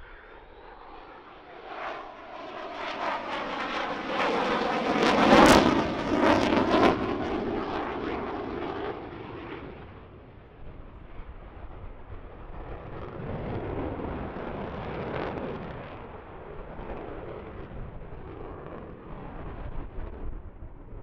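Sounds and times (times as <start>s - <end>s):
jet engine roar passing overhead: 0.0s - 21.0s.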